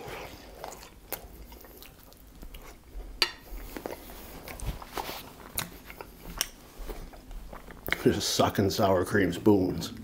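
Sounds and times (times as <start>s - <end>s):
wet lip smacks and chewing: 0.6s - 2.8s, 5.4s - 8.0s.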